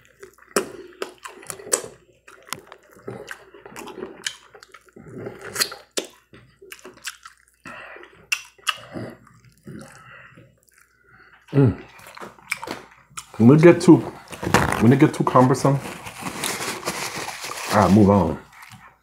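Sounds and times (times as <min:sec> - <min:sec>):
wet eating mouth sounds: 0:00.0 - 0:13.5.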